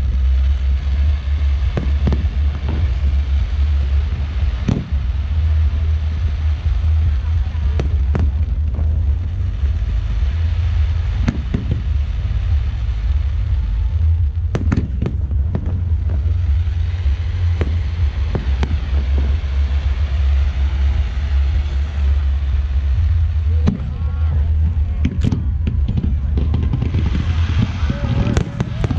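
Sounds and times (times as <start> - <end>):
fireworks bursting with sharp bangs: 0.0 - 28.9
steady low rumble: 0.0 - 28.9.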